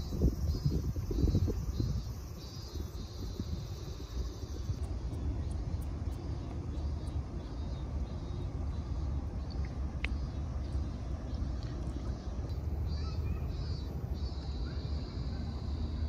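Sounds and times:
wind buffeting microphone: 0.0s - 8.8s.

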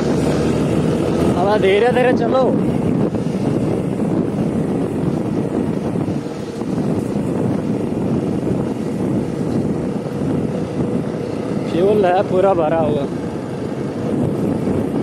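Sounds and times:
motorcycle engine: 0.0s - 15.0s
road noise: 0.0s - 15.0s
wind buffeting microphone: 0.0s - 15.0s.

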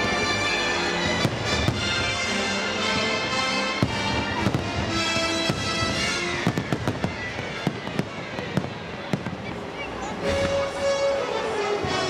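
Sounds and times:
music with long held notes: 0.0s - 8.7s, 10.0s - 12.0s
fireworks cracking and popping: 3.8s - 9.8s.

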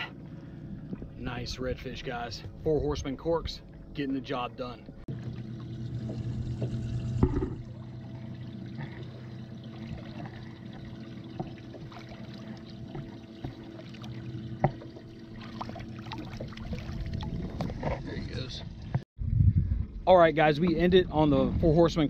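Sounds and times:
water sloshing and trickling: 0.0s - 19.0s
steady low hum: 0.0s - 20.1s
fish splashing: 5.1s - 17.8s.

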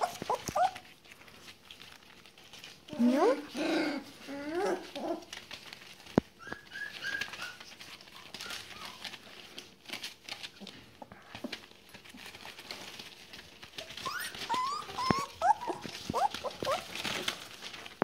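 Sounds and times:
puppy squeaks: 0.0s - 0.8s, 6.4s - 9.1s, 13.8s - 17.2s
newspaper rustling: 0.0s - 3.5s, 4.3s - 18.0s
puppy paws pattering: 0.0s - 18.0s.

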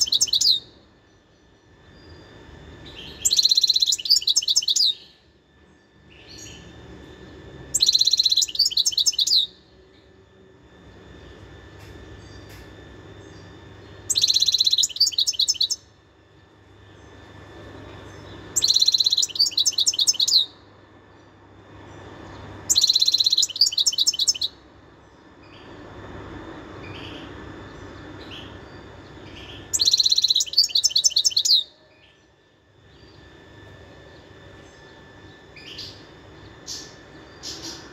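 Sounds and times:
goldfinch twittering trills: 0.0s - 0.6s, 2.9s - 5.1s, 7.7s - 9.5s, 14.1s - 15.8s, 18.2s - 20.5s, 22.7s - 24.5s, 29.3s - 31.6s.

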